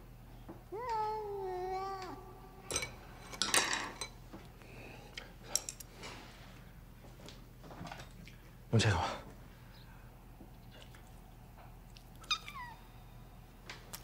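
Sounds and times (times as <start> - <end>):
cat meowing: 12.2 - 12.9.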